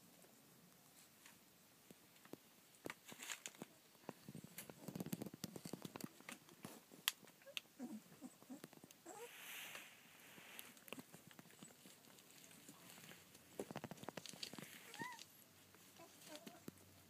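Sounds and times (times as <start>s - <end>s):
puppies squeaking faintly: 7.4s - 9.6s, 14.7s - 16.7s
puppies pattering and scuffing: 10.4s - 17.0s.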